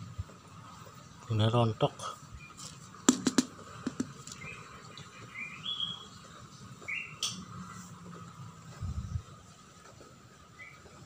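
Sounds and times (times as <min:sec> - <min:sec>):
bird chirping: 0:04.3 - 0:07.4.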